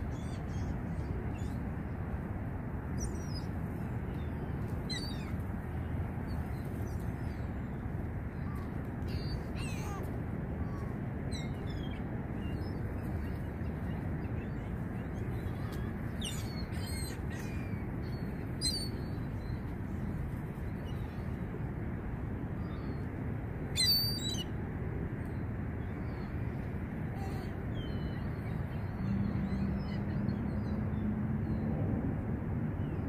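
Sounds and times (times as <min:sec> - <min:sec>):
gulls calling: 0:08.3 - 0:21.3, 0:23.7 - 0:24.5.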